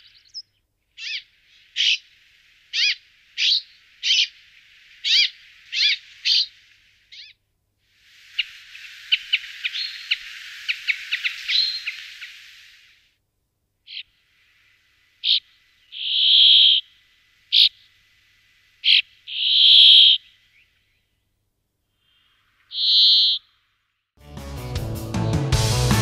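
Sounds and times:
bird calling: 0.0s - 7.4s, 8.3s - 12.8s, 13.9s - 14.2s, 15.2s - 18.0s, 18.8s - 21.1s, 22.0s - 23.6s
music: 24.2s - 26.0s.

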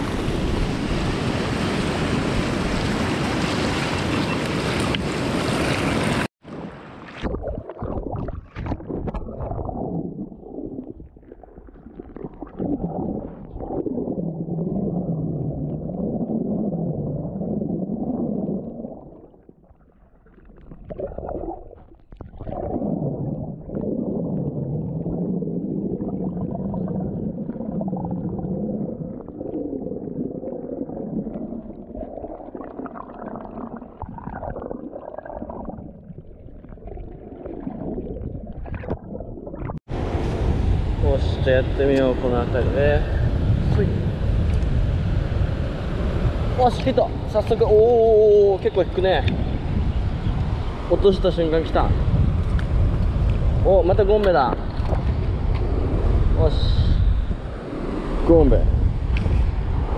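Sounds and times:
underwater sloshing and gurgling: 5.6s - 40.8s, 42.5s - 59.9s
wind on microphone: 37.8s - 59.9s.

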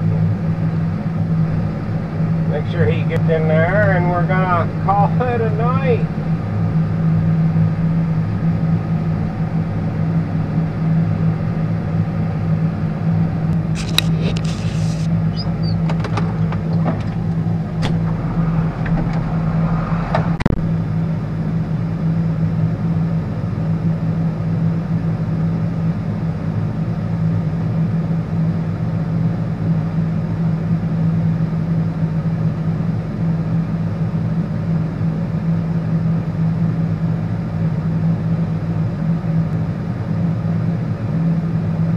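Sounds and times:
tractor diesel engine running: 0.0s - 41.9s
sharp clicks and knocks: 13.5s - 18.1s.

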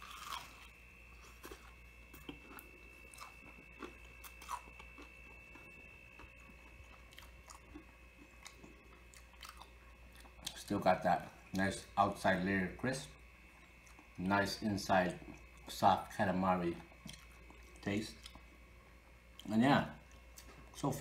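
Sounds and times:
chewing crispy fried food: 0.0s - 10.8s, 13.4s - 14.3s, 15.0s - 15.8s, 16.7s - 18.6s.

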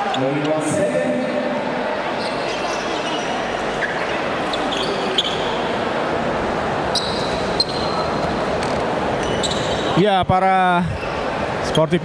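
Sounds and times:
crowd hubbub: 0.0s - 12.0s
sneakers squeaking on court: 2.2s - 5.7s, 6.9s - 9.9s.

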